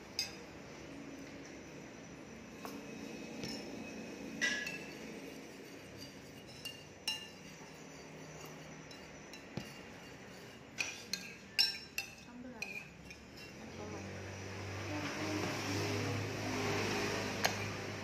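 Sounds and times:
metal spoon clinking on plate: 0.1 - 0.4, 3.4 - 13.6.

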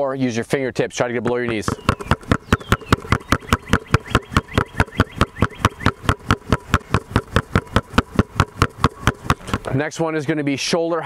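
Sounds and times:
basketballs bouncing on asphalt: 1.2 - 9.8.

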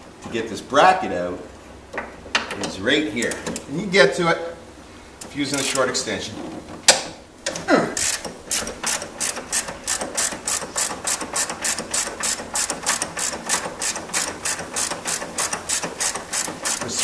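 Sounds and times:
ratchet clicking: 5.5 - 5.9, 8.0 - 17.0.

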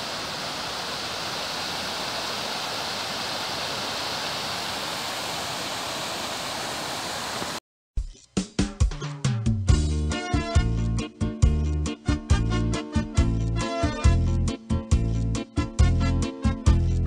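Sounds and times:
waterfall rushing water: 0.0 - 7.6.

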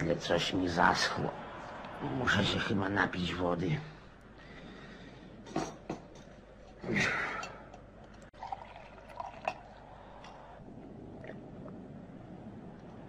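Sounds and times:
water pouring into a cup: 8.3 - 10.6.

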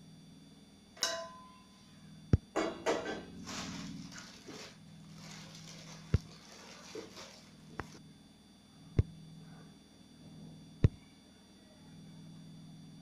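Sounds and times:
low steady hum: 0.0 - 13.0
rustling and scraping: 2.9 - 8.0.

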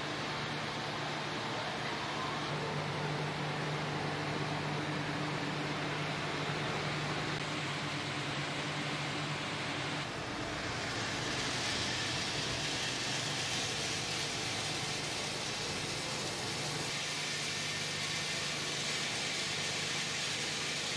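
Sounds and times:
machine hum: 0.0 - 20.9
even hiss: 5.4 - 20.9.

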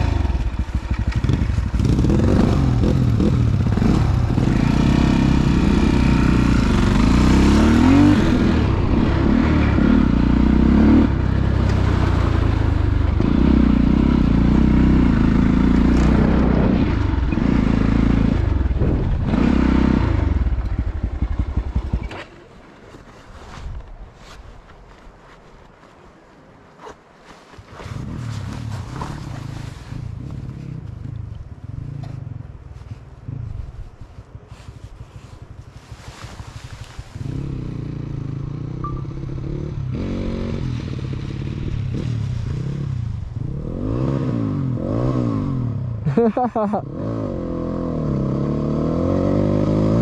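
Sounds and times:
dirt bike engine revving: 0.0 - 22.2.

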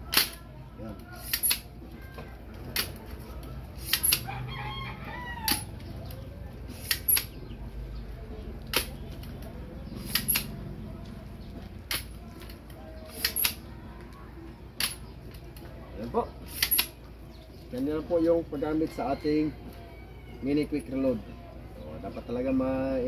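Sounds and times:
speargun snapping and clacking: 1.2 - 1.7, 3.8 - 4.3, 5.5 - 5.7, 6.7 - 7.4, 8.7 - 9.0, 10.0 - 10.6, 11.9 - 13.6, 14.8 - 15.4, 16.5 - 17.0
rooster crowing: 4.2 - 5.8, 18.7 - 20.7.

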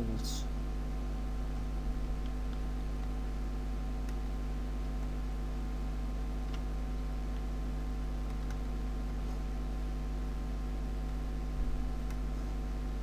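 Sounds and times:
electrical hum and hiss: 0.0 - 13.0
computer mouse clicks: 4.0 - 4.4, 6.4 - 6.7, 8.2 - 8.8, 12.0 - 12.4.

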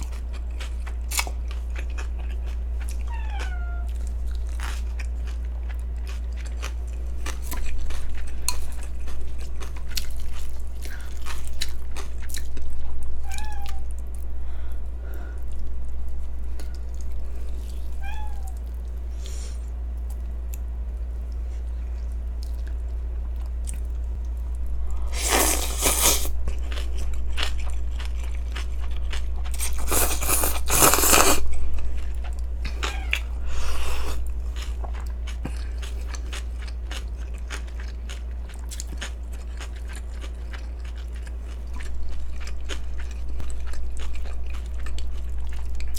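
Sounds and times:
wet chewing: 0.0 - 13.0, 22.1 - 45.9
steady low hum: 0.0 - 45.9
cat meowing: 3.1 - 4.0, 13.2 - 13.9, 18.0 - 18.6, 32.7 - 33.4
slurping noodles: 25.1 - 26.3, 29.6 - 31.4.

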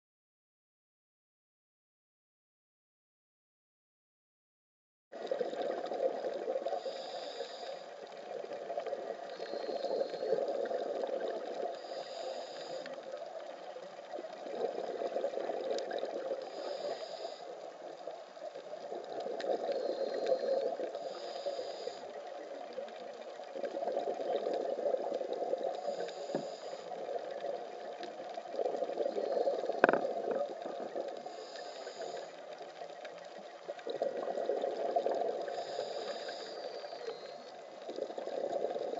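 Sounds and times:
exhaled bubbles underwater: 5.2 - 38.9
regulator breathing hiss: 6.8 - 8.1, 9.2 - 10.5, 11.7 - 13.0, 16.4 - 17.7, 19.7 - 22.4, 25.8 - 27.1, 31.2 - 32.6, 35.5 - 37.6.

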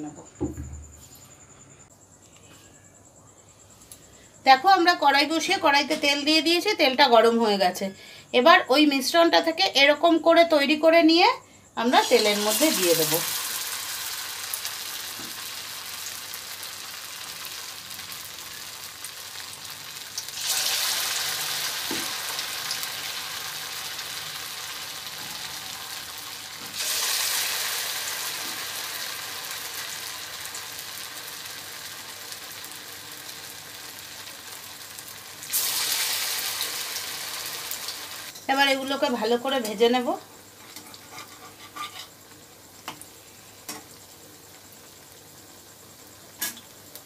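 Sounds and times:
batter sizzling in hot oil: 11.8 - 39.0, 40.5 - 47.0.

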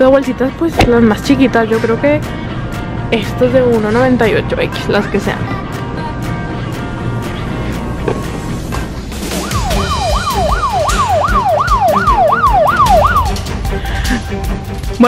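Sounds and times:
background music with steady beat: 0.0 - 15.0
electronic siren sweeps: 9.4 - 13.4.

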